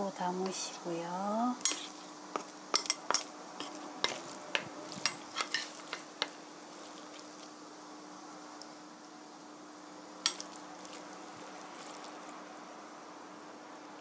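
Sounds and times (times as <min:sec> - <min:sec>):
utensils clinking on metal pot: 0:01.6 - 0:01.9, 0:02.8 - 0:04.3.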